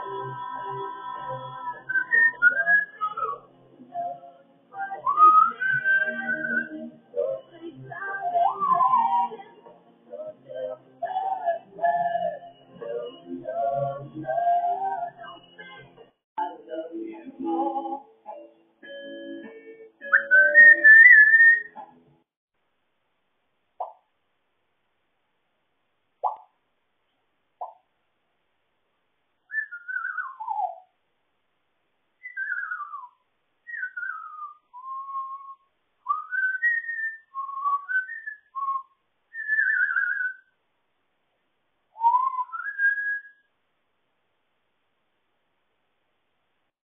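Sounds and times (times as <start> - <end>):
parrot whistling: 1.8 - 3.4, 20.0 - 21.8, 29.5 - 30.9, 32.2 - 40.5, 42.0 - 43.5.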